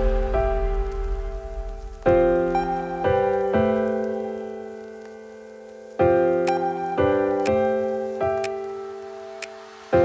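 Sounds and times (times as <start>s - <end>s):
piano chords ringing: 0.0s - 10.0s.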